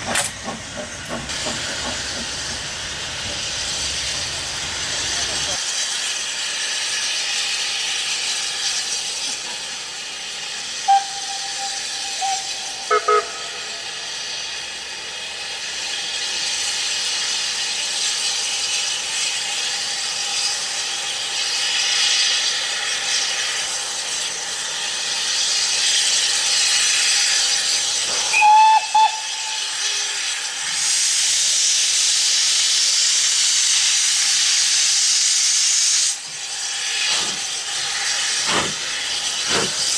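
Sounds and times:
steam locomotive hissing: 0.0 - 39.9
steam whistle toots: 10.8 - 14.5, 28.3 - 31.2.

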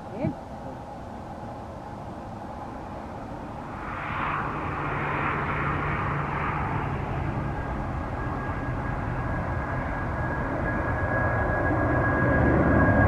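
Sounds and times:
jet engines at takeoff: 0.0 - 13.0.

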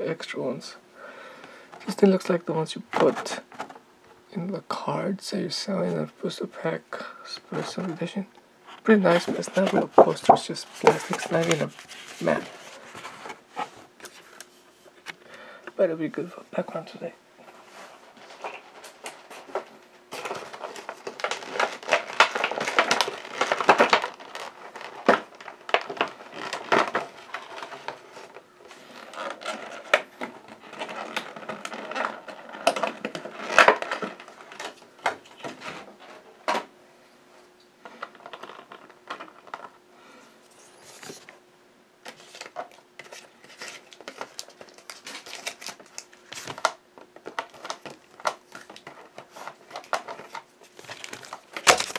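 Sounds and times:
packaging rustling and crinkling: 7.4 - 15.2, 16.5 - 36.7, 37.8 - 39.8, 42.0 - 51.9.

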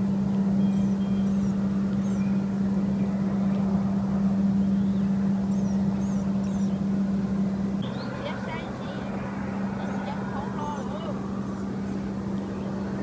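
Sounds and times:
engine humming: 0.0 - 13.0
faint bird chirps: 0.6 - 2.5, 4.6 - 6.9.

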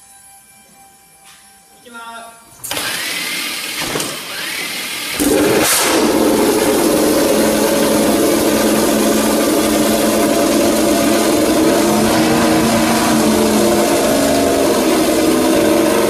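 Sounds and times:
motorcycle engine running: 5.2 - 16.0.

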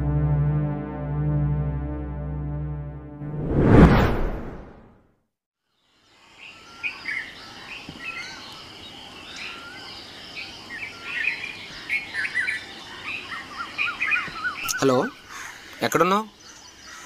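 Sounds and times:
birds chirping: 6.5 - 17.0.

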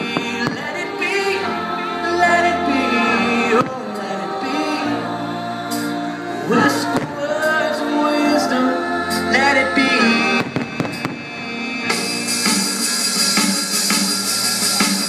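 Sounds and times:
loud music with sung notes: 0.0 - 15.0
fireworks bursting: 10.3 - 13.9.

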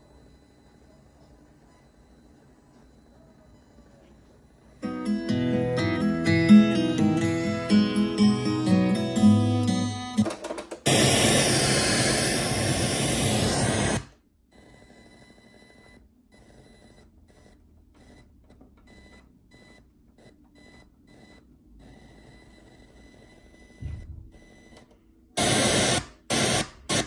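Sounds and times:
guitar music from speakers: 4.8 - 10.2
faint hiss with steady whine: 10.9 - 14.1
radio static hiss: 10.9 - 14.1, 25.4 - 27.0.

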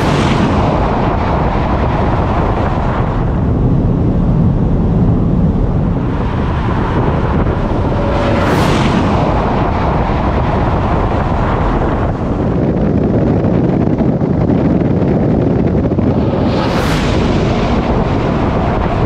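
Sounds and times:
car road rumble: 0.0 - 19.0
wind buffeting: 0.0 - 19.0
hissing rush: 15.8 - 19.0.

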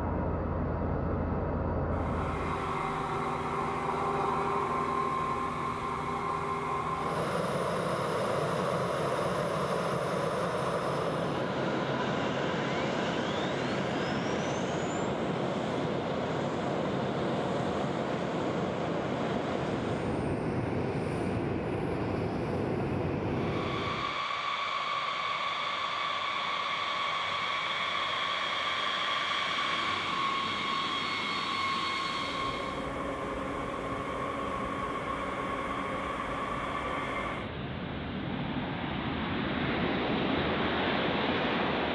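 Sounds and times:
deep engine rumble: 0.0 - 11.3, 32.2 - 37.5
jet engine spooling up: 2.0 - 37.6.

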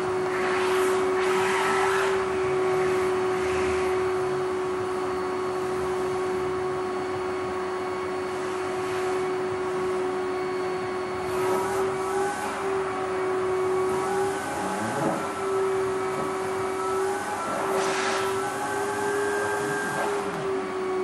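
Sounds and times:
vacuum cleaner running: 0.0 - 21.0.

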